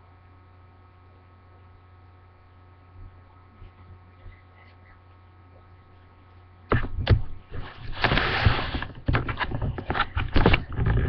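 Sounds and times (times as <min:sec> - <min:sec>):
faint steady hum: 0:00.0 - 0:11.0
microphone handling knocks and thumps: 0:06.7 - 0:11.0.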